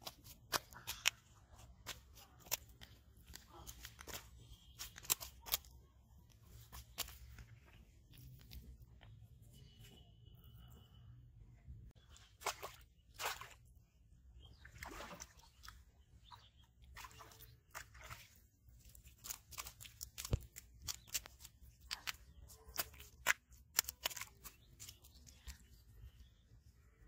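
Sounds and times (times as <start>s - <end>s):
fish flopping on mud: 0.0s - 5.8s, 16.8s - 25.8s.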